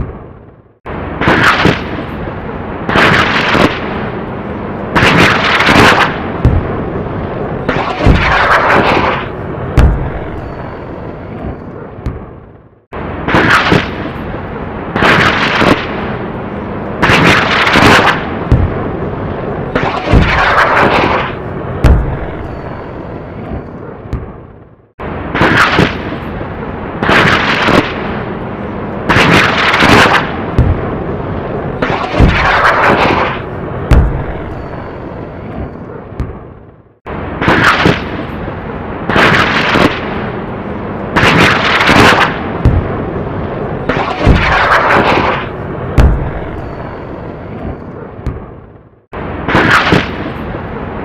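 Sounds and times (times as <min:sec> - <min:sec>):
firework bangs with hissing: 0:01.1 - 0:02.2, 0:04.9 - 0:06.8, 0:17.0 - 0:18.9, 0:19.7 - 0:22.6, 0:25.3 - 0:26.4.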